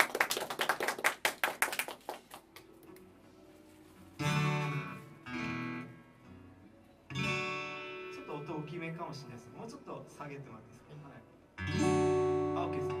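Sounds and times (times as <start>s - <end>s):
applause: 0.0s - 2.8s
acoustic guitar chords strummed: 4.2s - 9.0s, 11.6s - 13.0s.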